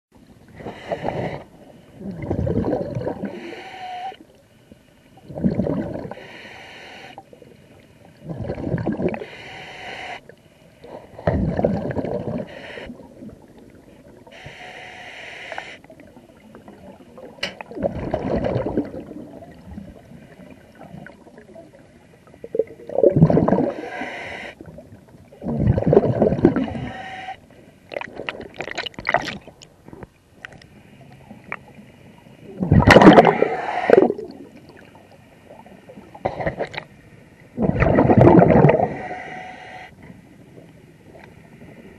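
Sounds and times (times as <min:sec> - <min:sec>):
regulator hiss on inhale: 0:00.5 - 0:02.0, 0:03.2 - 0:05.2, 0:06.1 - 0:08.2, 0:09.1 - 0:11.1, 0:12.4 - 0:13.1, 0:13.9 - 0:16.1, 0:23.7 - 0:24.7, 0:26.6 - 0:27.9, 0:33.2 - 0:34.3, 0:38.7 - 0:40.1
exhaled bubbles gurgling: 0:00.5 - 0:03.7, 0:05.2 - 0:06.3, 0:08.1 - 0:09.3, 0:10.8 - 0:14.3, 0:15.9 - 0:27.1, 0:27.9 - 0:30.1, 0:32.4 - 0:36.8, 0:37.6 - 0:39.3.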